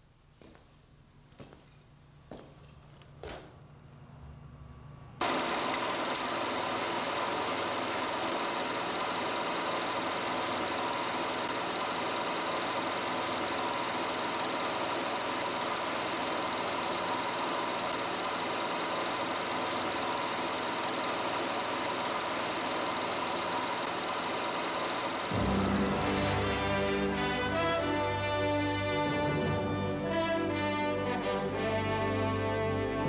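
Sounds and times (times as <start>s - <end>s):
film projector rattling: 5.2s - 25.6s.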